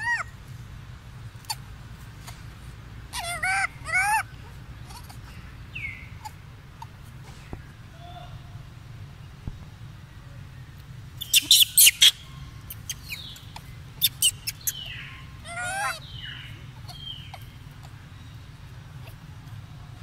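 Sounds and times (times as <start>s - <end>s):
baby monkey squeaks: 0.0s - 0.3s, 1.4s - 2.4s, 3.1s - 7.0s, 11.2s - 18.0s, 19.0s - 19.2s
baby monkey wavering cry: 0.0s - 0.4s, 1.4s - 1.7s, 3.1s - 7.0s, 11.2s - 18.0s, 18.9s - 19.5s.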